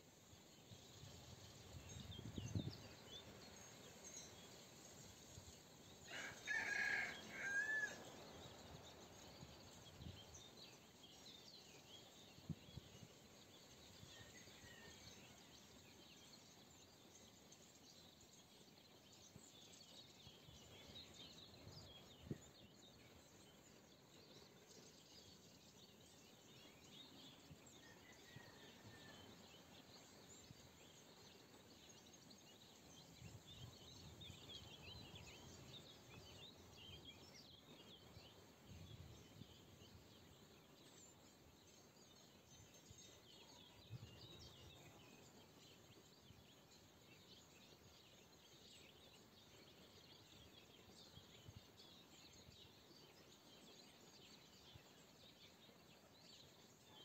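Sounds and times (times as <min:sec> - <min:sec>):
small birds chirping: 0:00.0 - 0:57.0
rooster crowing: 0:06.1 - 0:08.1.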